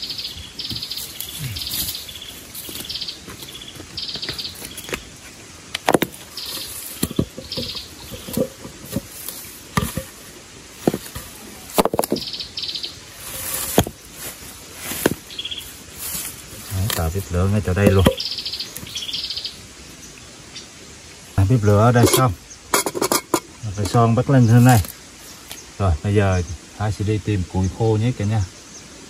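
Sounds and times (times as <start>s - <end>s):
knocks and clatters of wood: 5.8s - 10.2s, 10.8s - 12.3s, 13.4s - 14.0s, 14.8s - 15.3s, 17.8s - 18.2s.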